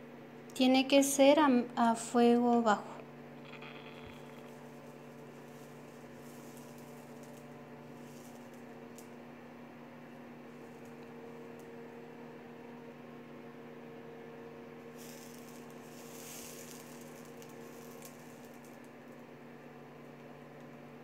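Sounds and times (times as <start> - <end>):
faint electrical hum: 0.0 - 21.0
soft hiss: 3.4 - 9.2, 14.8 - 18.9.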